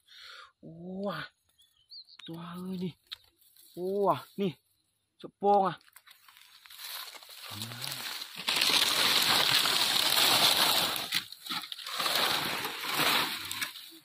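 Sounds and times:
dry palm fronds rustling and scraping: 5.8s - 14.0s.

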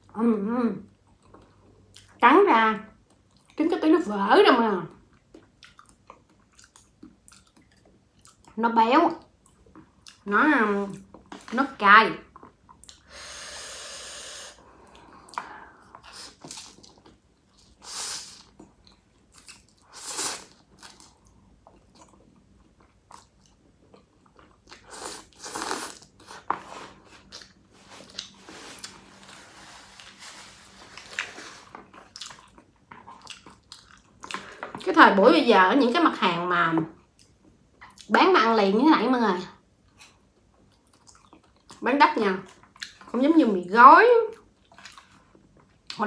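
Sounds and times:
wet chewing: 5.2s - 8.6s, 20.5s - 29.0s, 30.9s - 35.0s, 39.9s - 41.8s, 44.4s - 46.0s
noodle slurping: 24.8s - 31.8s.

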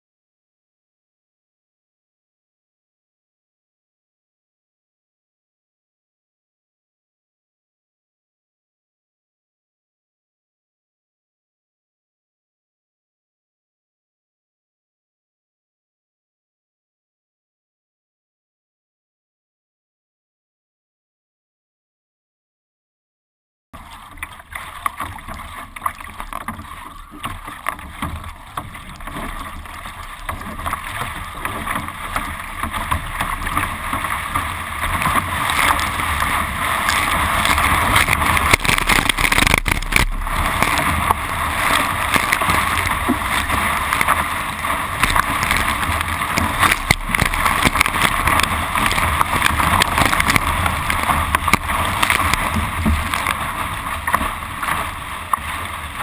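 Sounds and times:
water splashing along boat bow: 23.8s - 56.0s.

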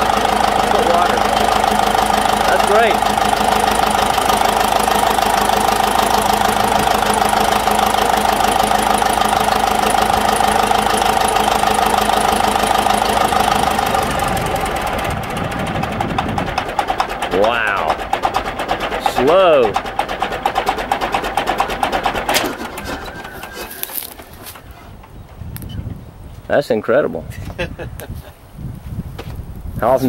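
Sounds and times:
bulldozer diesel engine running: 0.0s - 26.5s.

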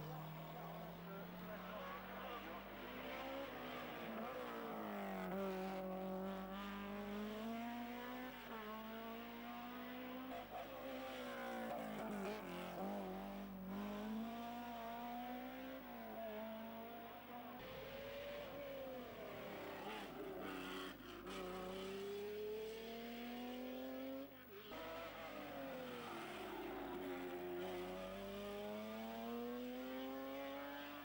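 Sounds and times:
race car engines revving: 0.0s - 31.0s.

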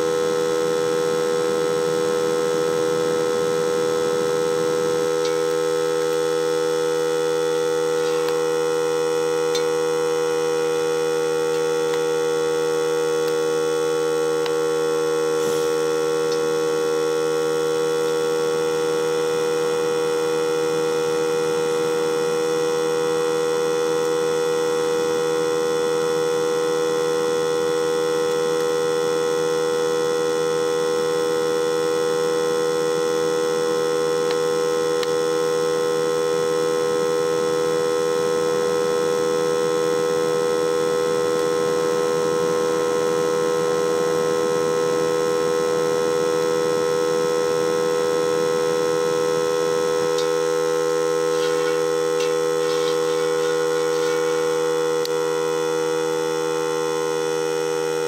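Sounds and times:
air compressor humming: 0.0s - 58.0s.

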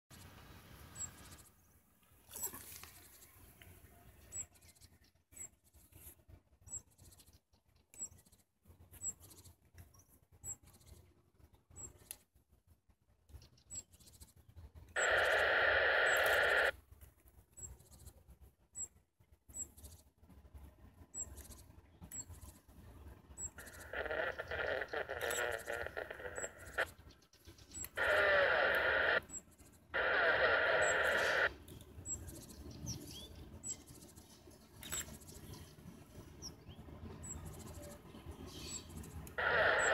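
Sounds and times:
faint high chirps: 15.0s - 16.8s, 23.3s - 34.0s.

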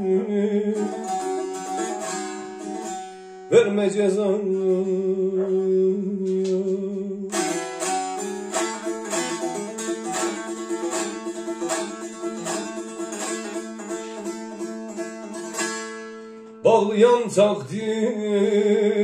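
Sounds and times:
long-necked lute plucked notes: 0.0s - 3.9s, 7.3s - 16.7s.

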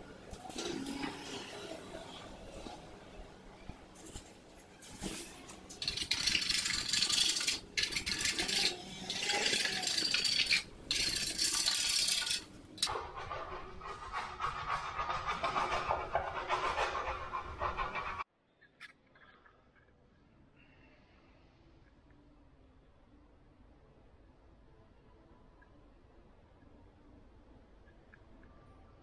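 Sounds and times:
metal scraper scraping plaster wall: 5.8s - 13.0s.

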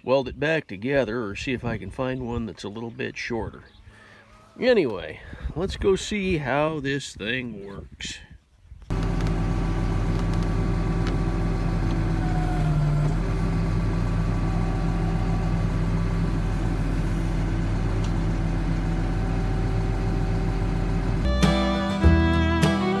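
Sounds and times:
tractor engine running: 8.9s - 22.6s.

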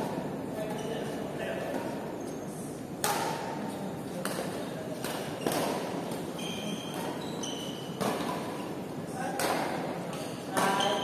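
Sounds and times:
rackets hitting shuttlecock: 3.0s - 3.6s, 4.2s - 11.0s.

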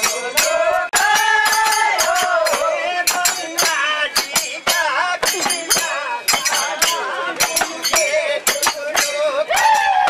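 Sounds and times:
men singing: 0.0s - 10.0s
sharp metallic clashes: 0.0s - 10.0s.

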